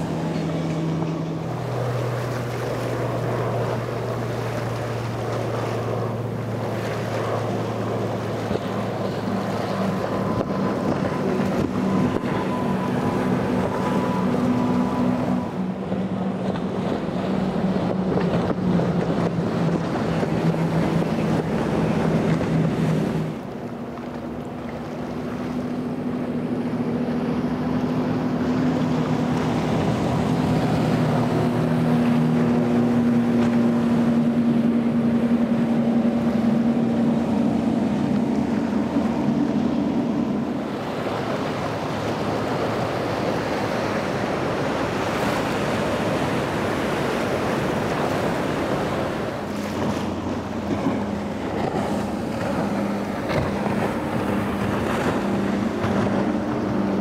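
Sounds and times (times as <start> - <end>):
wind on microphone: 0.0 - 23.5
outboard motors passing: 0.0 - 57.0.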